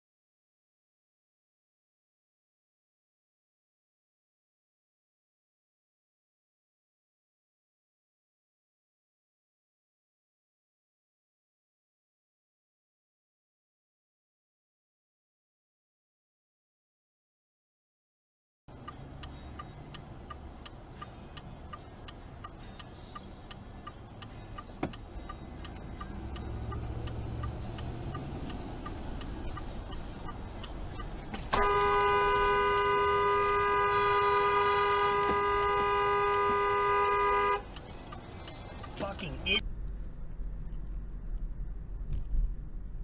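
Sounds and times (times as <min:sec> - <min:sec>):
regular ticking: 0:18.7 - 0:40.0
road noise: 0:18.7 - 0:43.0
car horn blast: 0:31.5 - 0:37.7.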